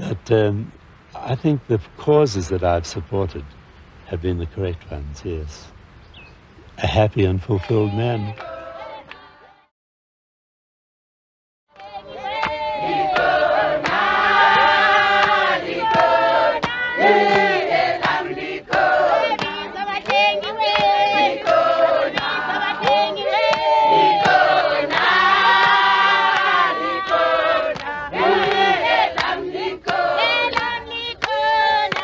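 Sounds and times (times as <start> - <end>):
handclaps: 7.6 - 9.3, 11.8 - 32.0
women singing in chorus: 7.7 - 9.7, 11.7 - 32.0.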